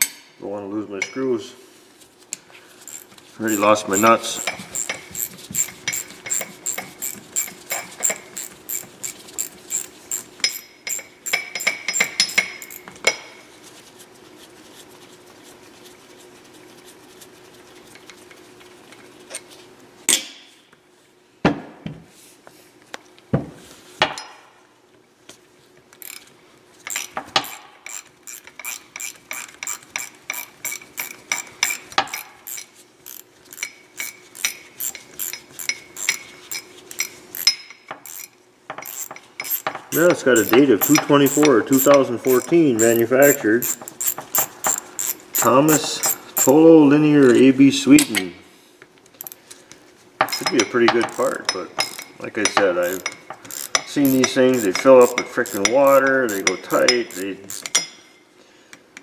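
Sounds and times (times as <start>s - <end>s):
ratchet tool clicking: 2.9s - 12.9s, 26.0s - 26.3s, 26.9s - 46.6s, 49.2s - 49.4s, 52.8s - 57.8s.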